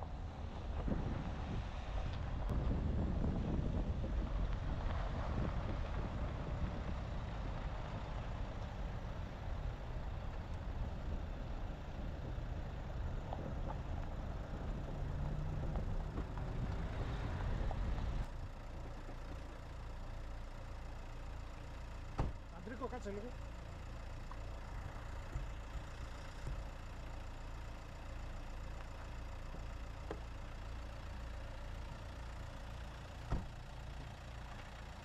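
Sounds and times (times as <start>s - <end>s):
car engine and road rumble: 0.0s - 35.0s.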